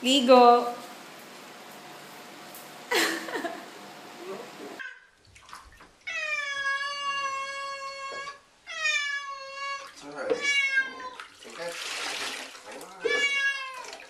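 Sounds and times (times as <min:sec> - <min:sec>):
cat yowling: 0:06.1 - 0:11.3, 0:12.8 - 0:14.0.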